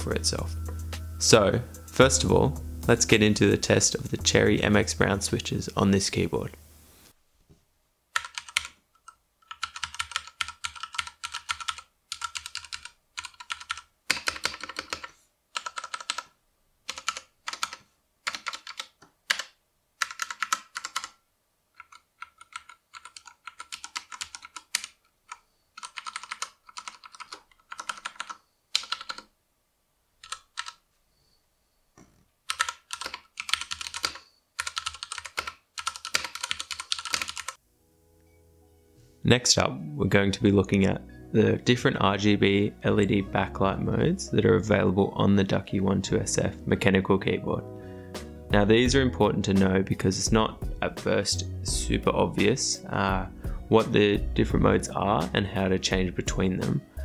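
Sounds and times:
mechanical keyboard typing: 8.2s - 16.3s, 16.9s - 29.3s, 30.2s - 30.8s, 32.4s - 37.6s.

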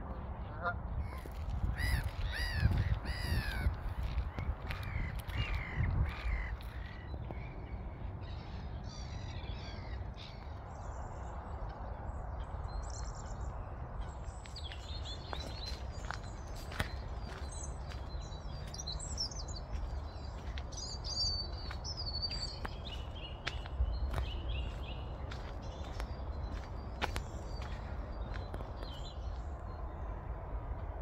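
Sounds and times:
loud arched bird calls: 1.0s - 3.7s
small birds chirping: 12.2s - 29.9s.

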